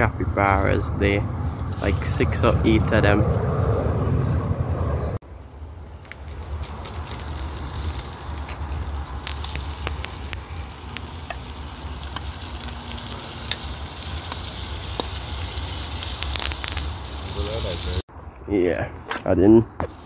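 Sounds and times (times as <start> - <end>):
food sizzling in a pot: 5.3 - 18.0
wood fire crackling and popping: 5.6 - 18.0.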